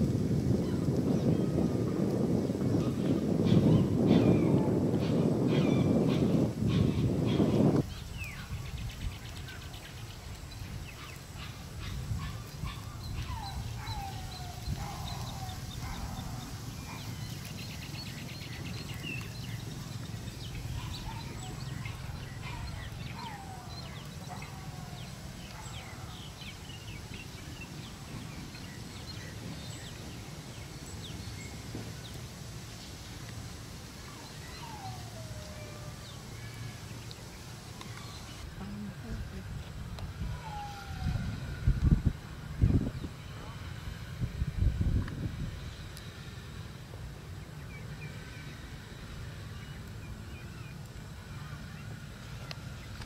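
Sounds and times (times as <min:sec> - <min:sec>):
steady low rumble: 0:37.0 - 0:53.0.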